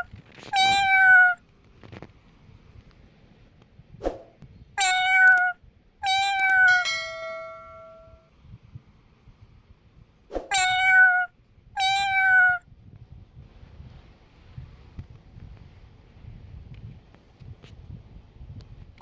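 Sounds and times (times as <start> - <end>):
cat meowing loudly: 0.0 - 1.4, 4.8 - 8.2, 10.5 - 12.6.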